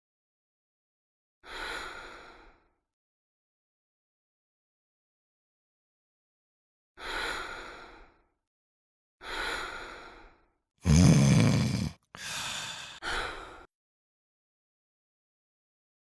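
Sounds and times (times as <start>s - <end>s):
person breathing and sighing: 9.2s - 13.7s.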